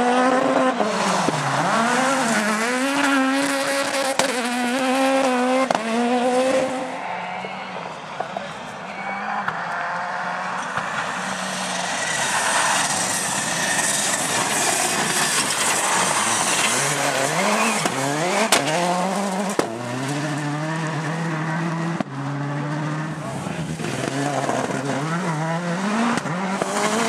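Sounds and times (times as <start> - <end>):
rally car engine revving: 0.0 - 7.2, 9.0 - 27.0
tyres on gravel hissing: 11.6 - 17.8.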